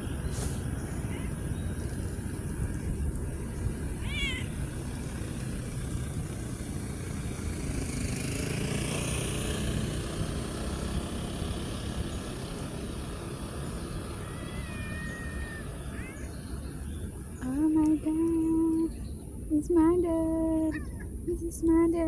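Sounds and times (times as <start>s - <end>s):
steady low rumble: 0.0s - 7.7s
vehicle passing: 0.0s - 20.7s
cat meowing: 4.0s - 4.5s, 14.2s - 16.3s.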